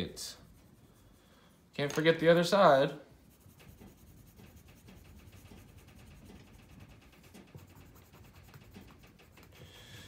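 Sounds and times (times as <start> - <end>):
colored pencil scratching paper: 3.2 - 10.0.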